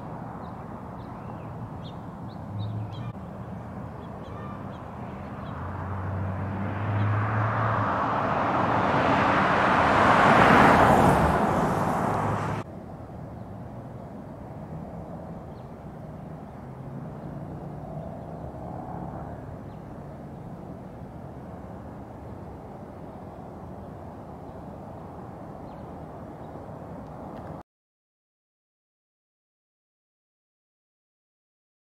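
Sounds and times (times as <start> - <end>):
faint distant traffic: 0.0 - 27.6
car road noise approaching: 5.2 - 12.7.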